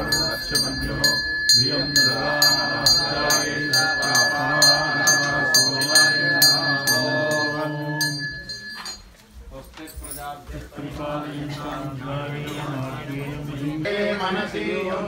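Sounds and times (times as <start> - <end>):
hand bell ringing: 0.0 - 9.3.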